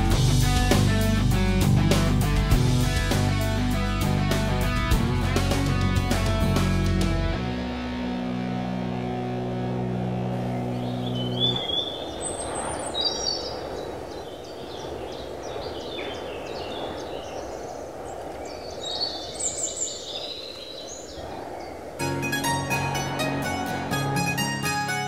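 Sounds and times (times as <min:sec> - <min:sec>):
guitar music: 0:00.0 - 0:11.6, 0:22.0 - 0:25.0
birds chirping and singing: 0:10.3 - 0:17.8.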